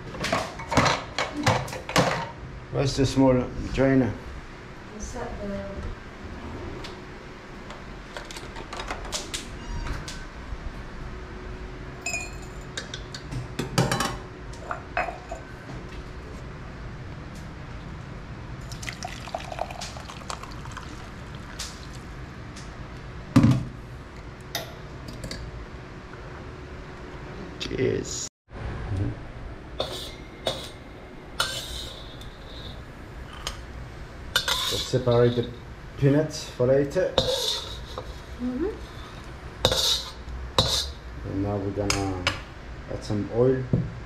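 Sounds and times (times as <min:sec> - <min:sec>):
dishes and utensils clattering: 0:00.2 - 0:02.4, 0:12.1 - 0:15.5, 0:29.8 - 0:30.8, 0:34.4 - 0:35.6, 0:37.2 - 0:38.3.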